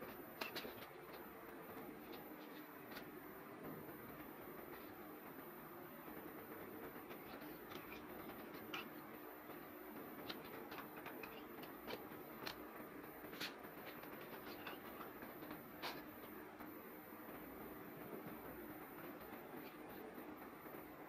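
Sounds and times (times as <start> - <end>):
faint steady hum: 0.0 - 21.0
hands ticking and rustling cloth: 6.7 - 16.8.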